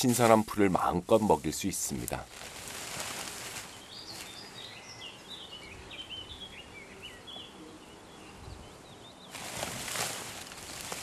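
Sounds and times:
grass rustling in plastic bag: 0.0s - 4.5s, 9.3s - 11.0s
faint outdoor background: 0.0s - 11.0s
songbird chirping: 0.0s - 11.0s.

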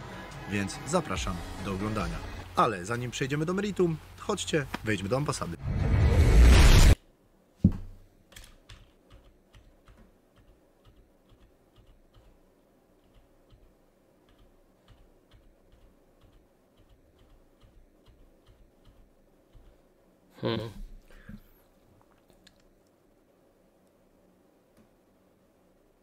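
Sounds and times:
faint clicks: 22.0s - 23.0s.

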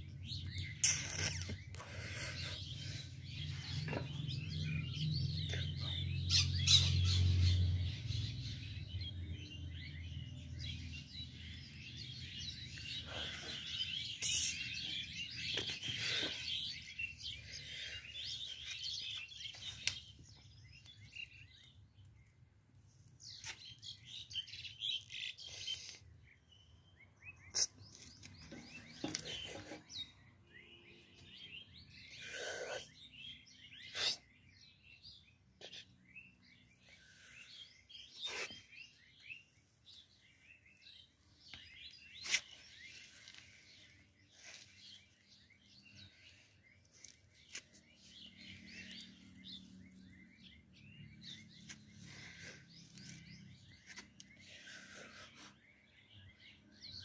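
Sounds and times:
birds chirping: 0.0s - 57.0s.

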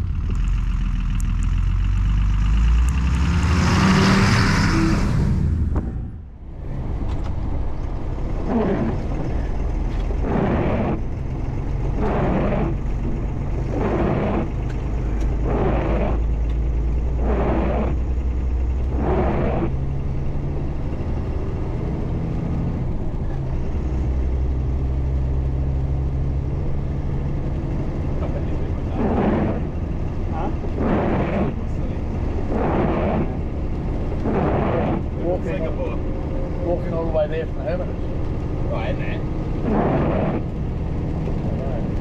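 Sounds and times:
truck diesel engine running: 0.0s - 42.0s
windscreen wiper sweeps: 8.3s - 16.4s, 17.1s - 18.1s, 18.9s - 19.8s, 28.2s - 36.1s, 39.0s - 40.7s.

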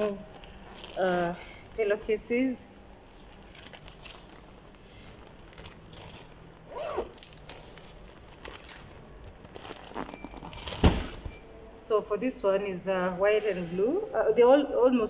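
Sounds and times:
packaging rustling and crinkling: 0.0s - 11.3s.

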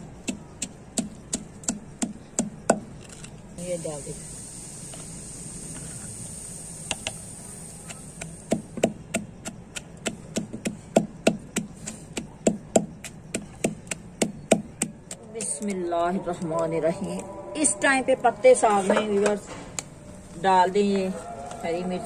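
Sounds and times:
wooden pestle pounding in mortar: 0.2s - 2.9s, 8.2s - 15.6s.

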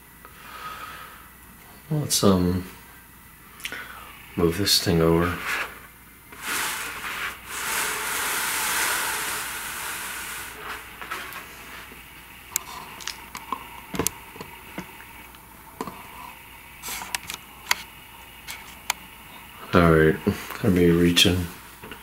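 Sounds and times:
board scraping across table: 5.2s - 11.9s.

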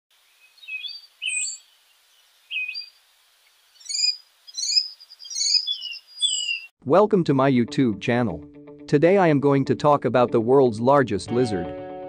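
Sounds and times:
faint hiss: 0.1s - 4.6s
birds chirping: 0.2s - 6.7s.

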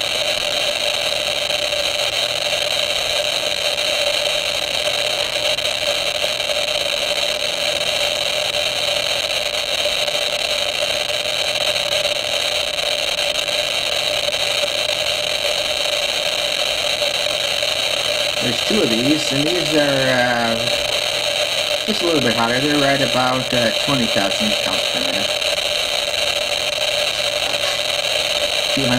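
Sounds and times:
radiation monitor clicking hiss: 0.0s - 28.9s.

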